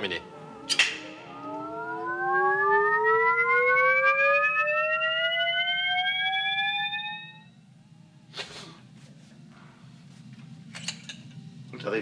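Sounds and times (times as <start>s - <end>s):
electronic tone rising in pitch: 0.0s - 7.6s.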